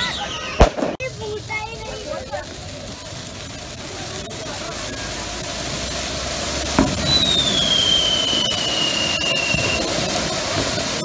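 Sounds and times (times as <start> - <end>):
firecracker sparks hissing: 0.1 - 11.0
sharp bang: 0.6 - 1.1, 6.8 - 7.9
high falling whistle: 6.8 - 10.3.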